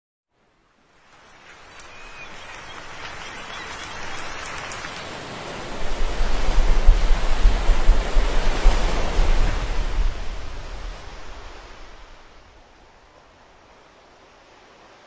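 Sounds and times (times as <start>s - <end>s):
water rushing and splashing: 0.5s - 15.0s
patter of leaping fish: 1.0s - 8.5s
low rumble: 5.8s - 11.0s.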